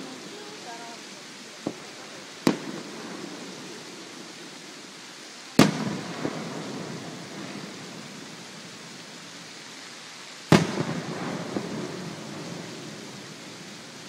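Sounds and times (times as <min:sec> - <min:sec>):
firework boom echoing: 0:01.6 - 0:04.6, 0:05.6 - 0:09.4, 0:10.5 - 0:14.0.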